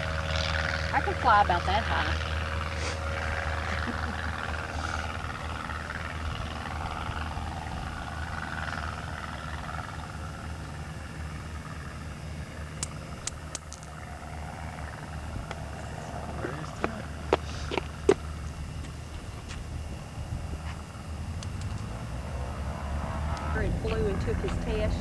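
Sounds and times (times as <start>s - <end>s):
distant light airplane droning: 0.0s - 25.0s
sharp clicks: 12.8s - 13.9s.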